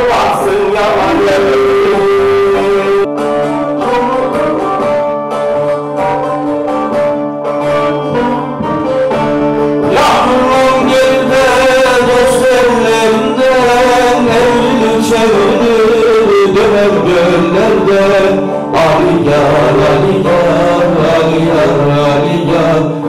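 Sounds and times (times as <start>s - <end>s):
man singing: 0.0s - 4.9s, 9.8s - 23.0s
lutes strummed and plucked: 0.0s - 23.0s.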